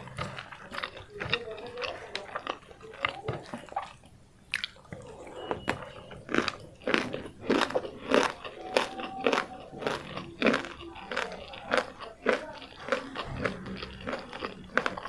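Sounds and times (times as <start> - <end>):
crunchy wet chewing: 0.0 - 15.0.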